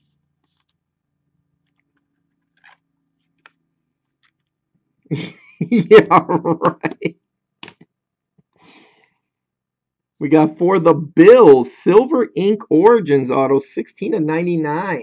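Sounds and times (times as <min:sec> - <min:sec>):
plastic scraping on plastic: 0:01.7 - 0:03.6.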